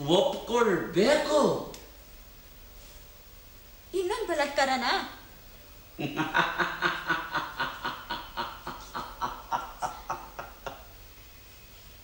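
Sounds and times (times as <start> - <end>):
man laughing: 6.0 - 11.0.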